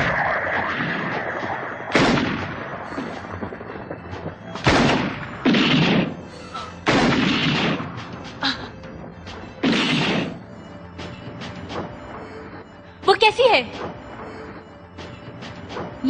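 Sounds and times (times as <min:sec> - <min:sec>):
pistol gunshots with echo: 0:00.0 - 0:08.1, 0:09.6 - 0:10.4.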